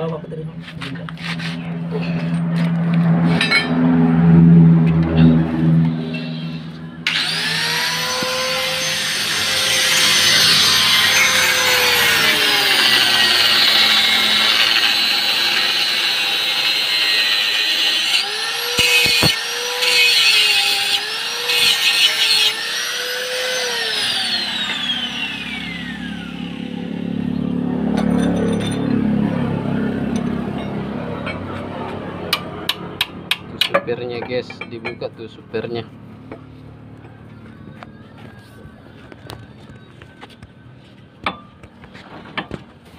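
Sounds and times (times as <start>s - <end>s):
harsh grinding: 0.6s - 29.0s
angle grinder cutting steel: 4.9s - 29.0s.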